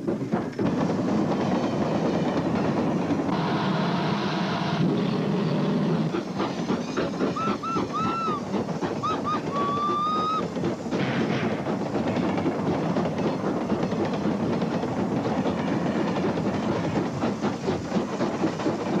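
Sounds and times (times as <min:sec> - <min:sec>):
steam locomotive exhaust rumbling: 0:00.0 - 0:19.0
steam whistle toots: 0:07.4 - 0:08.4, 0:09.0 - 0:10.4.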